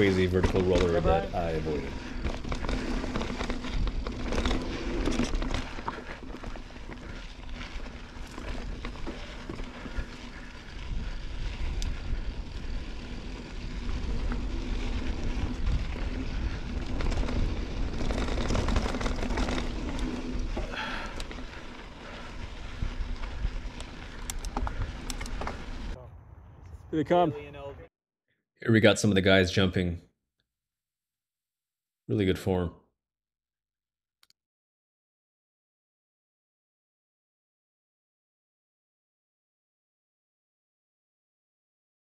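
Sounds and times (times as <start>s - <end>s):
bike clattering: 0.0s - 11.2s, 13.5s - 25.9s
tyres crunching over dirt: 0.0s - 26.0s
wind rumble on microphone: 9.9s - 20.4s.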